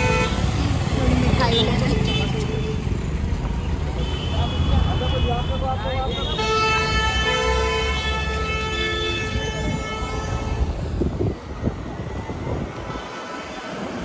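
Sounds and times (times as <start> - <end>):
road noise: 0.0 - 14.0
wind rushing on microphone: 10.6 - 13.1.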